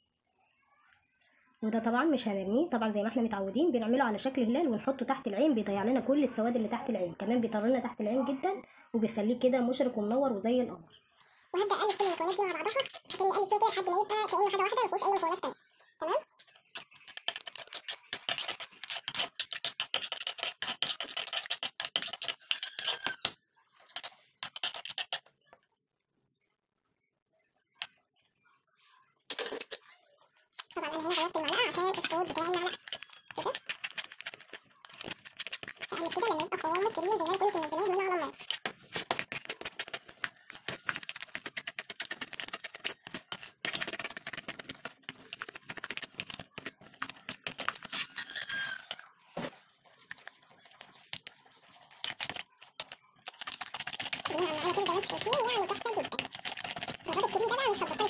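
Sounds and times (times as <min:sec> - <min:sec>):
metal spoon scraping a bowl: 0:16.7 - 0:25.2, 0:30.6 - 0:49.0.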